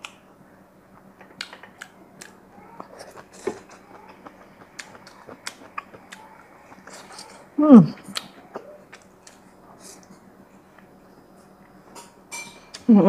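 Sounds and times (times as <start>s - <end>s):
person chewing: 0.9s - 10.9s
wet mouth clicks and smacks: 1.2s - 7.1s, 8.0s - 9.4s.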